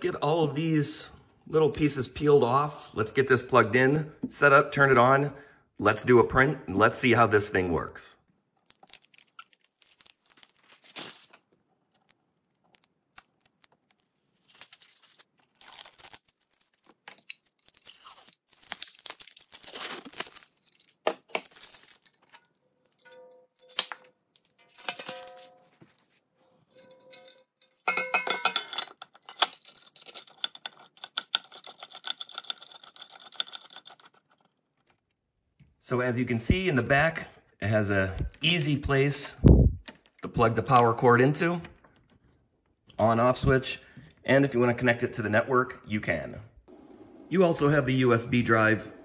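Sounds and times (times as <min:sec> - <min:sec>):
plastic film peeling and crinkling: 0:08.6 - 0:23.0.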